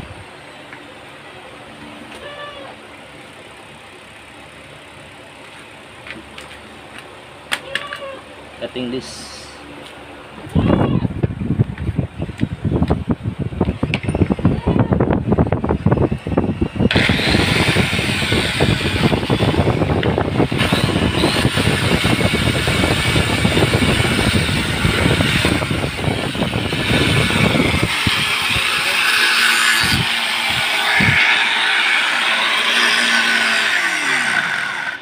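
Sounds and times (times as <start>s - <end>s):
angle grinder cutting metal: 16.5s - 35.0s.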